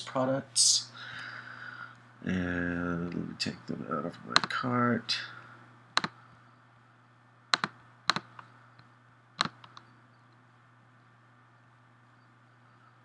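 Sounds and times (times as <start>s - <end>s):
faint low hum: 0.0s - 13.0s
computer mouse clicks: 6.0s - 6.2s, 7.6s - 8.5s, 9.4s - 9.9s.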